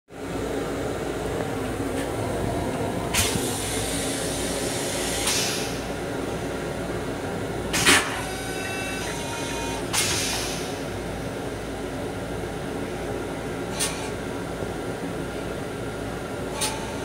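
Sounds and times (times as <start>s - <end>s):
train car hum: 0.1s - 17.0s
brief hisses: 3.2s - 5.8s, 10.0s - 10.7s.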